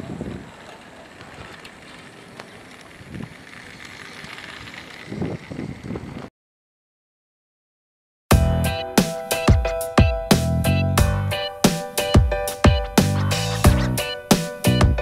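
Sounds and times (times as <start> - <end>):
wheels rattling on track: 0.0 - 6.3
toy train motor hum: 0.2 - 6.0.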